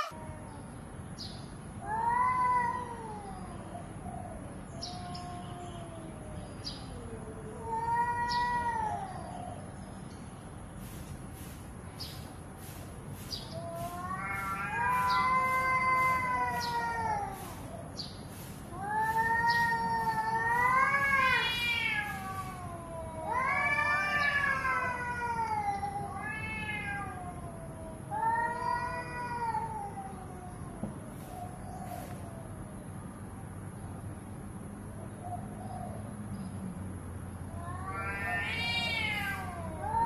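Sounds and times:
cats yowling: 0.0s - 0.7s, 1.8s - 9.7s, 13.3s - 32.5s, 37.4s - 40.0s.

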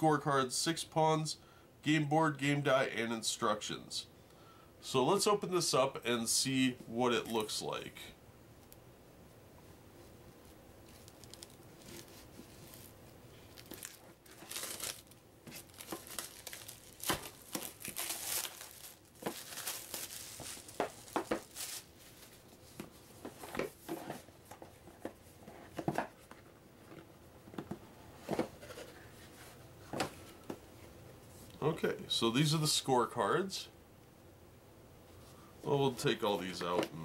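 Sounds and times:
plastic wrap tearing and crinkling: 10.8s - 22.5s.

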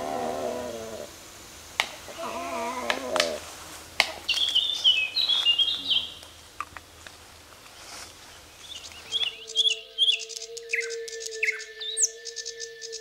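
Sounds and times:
low wavering bird calls: 0.0s - 6.8s, 7.6s - 13.0s
songbird chirping: 0.0s - 13.0s
sharp clicks: 1.8s - 3.4s.

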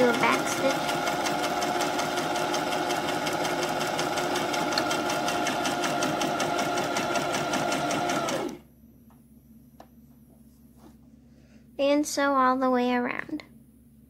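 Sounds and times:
sewing machine stitching: 0.0s - 8.6s.

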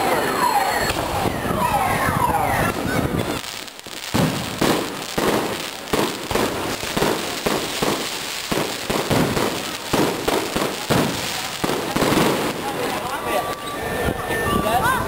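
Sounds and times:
fireworks bursting with bangs: 0.4s - 14.2s.

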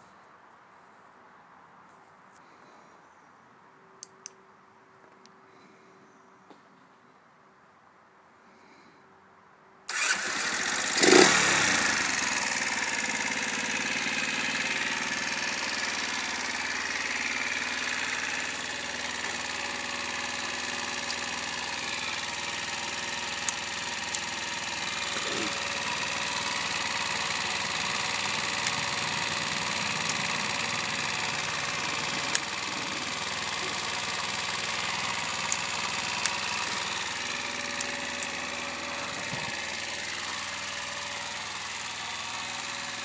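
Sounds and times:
motorcycle engine revving and idling: 9.9s - 43.0s.

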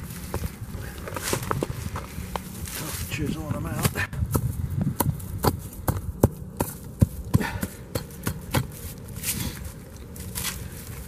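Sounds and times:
hammer striking frozen ground: 3.8s - 9.4s.

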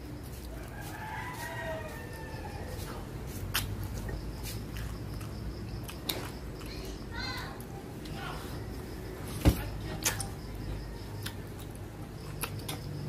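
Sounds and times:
rooster crowing: 0.4s - 3.1s.

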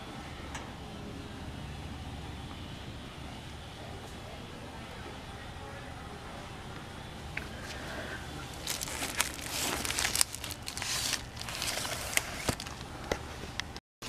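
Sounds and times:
steady low hum: 0.0s - 13.8s
crinkling handling noise: 7.4s - 13.8s.

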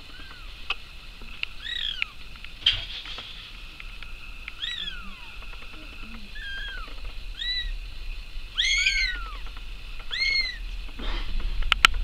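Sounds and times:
kittens meowing: 0.0s - 0.6s, 1.5s - 2.2s, 4.4s - 7.8s, 8.5s - 10.7s
short rustle: 2.2s - 4.0s.

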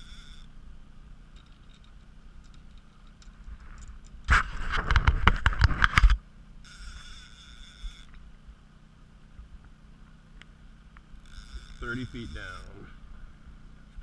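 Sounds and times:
boat motor hum: 0.0s - 14.0s
high steady whine: 0.0s - 14.0s
scraping and knocking on camera: 3.4s - 6.2s.

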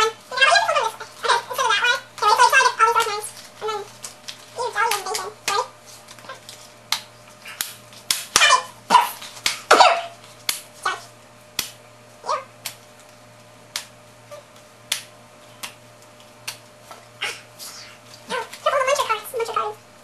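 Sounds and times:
dog yelping: 8.4s - 10.2s.

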